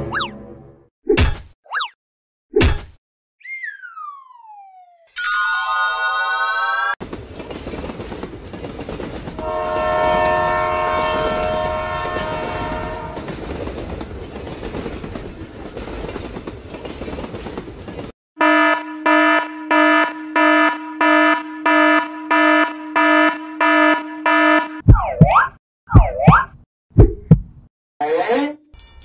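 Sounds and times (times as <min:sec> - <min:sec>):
train rumbling clatter: 0:07.0 - 0:18.1
multi-tone train horn: 0:09.4 - 0:13.4, 0:18.4 - 0:24.8.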